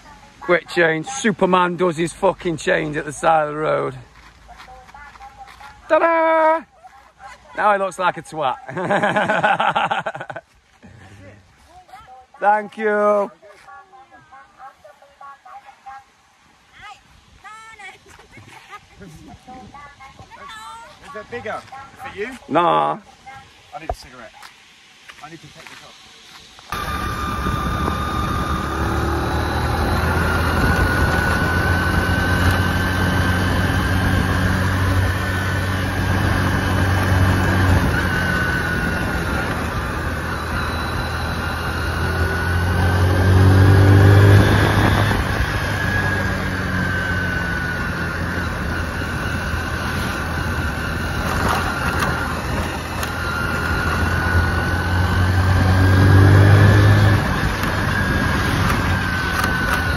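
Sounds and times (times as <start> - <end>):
wind and road noise: 0.0 - 59.9
small motorcycle engine revving: 26.7 - 59.9.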